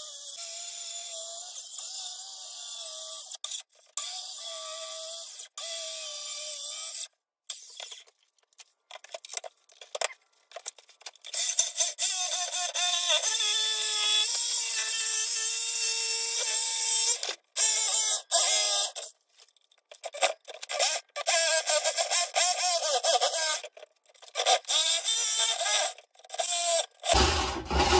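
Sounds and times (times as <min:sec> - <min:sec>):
circular saw cutting wood: 0:26.6 - 0:27.9.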